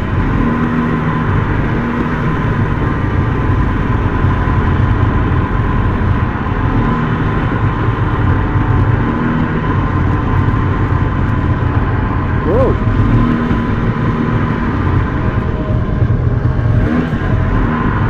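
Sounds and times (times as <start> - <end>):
snowmobile engine whining: 7.4 - 18.0.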